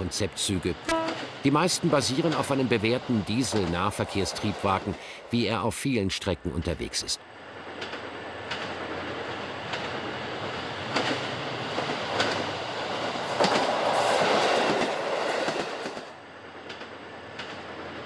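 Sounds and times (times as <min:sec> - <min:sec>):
train passing: 0:00.0 - 0:18.0
wheels clacking over rail joints: 0:07.7 - 0:18.0.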